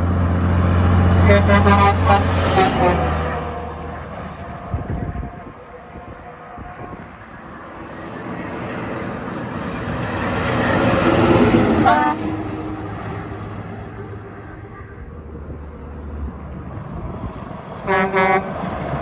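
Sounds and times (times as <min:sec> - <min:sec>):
dump truck driving: 0:00.0 - 0:19.0
air horn blast: 0:01.2 - 0:03.4, 0:11.8 - 0:12.6, 0:17.8 - 0:18.6.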